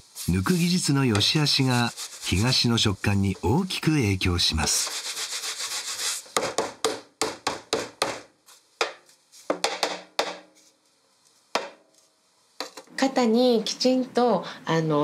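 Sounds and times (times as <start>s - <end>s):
dough rubbed on wooden mold: 0.0s - 6.5s.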